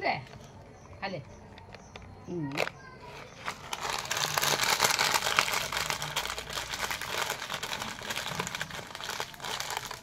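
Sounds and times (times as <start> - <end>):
plastic packet crinkling: 1.5 - 10.0.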